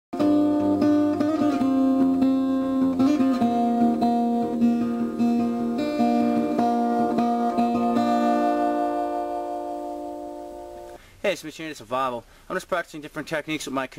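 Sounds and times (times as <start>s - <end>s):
strummed acoustic guitar: 0.2s - 11.0s.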